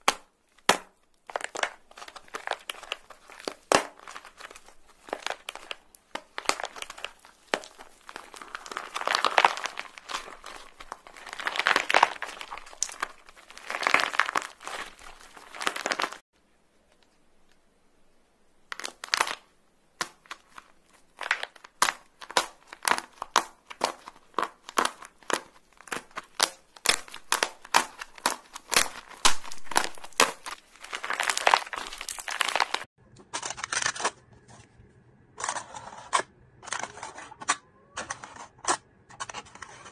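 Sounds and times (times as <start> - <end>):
crust crackling and snapping: 0.0 - 16.2, 18.6 - 34.2
crust crunching: 0.0 - 16.2, 18.6 - 34.3
foil crinkling: 0.0 - 16.2, 18.7 - 32.9.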